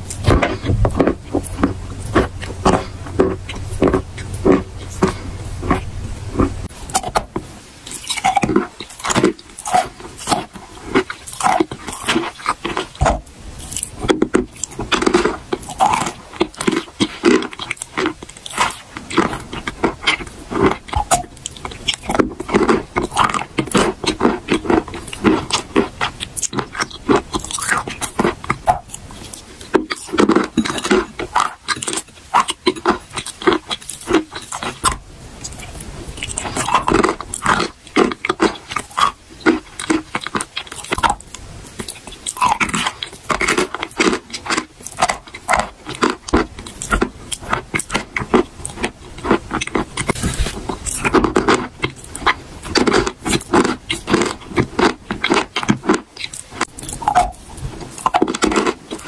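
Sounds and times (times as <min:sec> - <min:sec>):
wet sticky mouth sounds: 0:00.0 - 0:59.0
chalk being crunched: 0:50.1 - 0:50.9.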